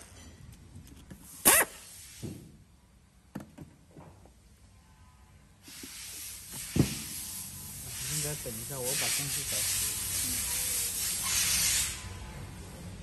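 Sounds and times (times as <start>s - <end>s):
steady hiss: 5.6s - 13.0s.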